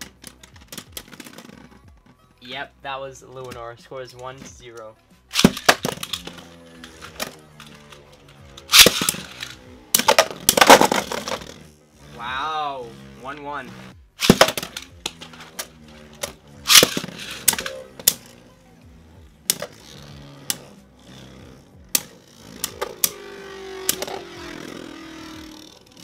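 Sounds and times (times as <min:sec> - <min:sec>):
spinning tops clacking: 0:04.8 - 0:11.8, 0:14.2 - 0:18.4, 0:19.4 - 0:26.0.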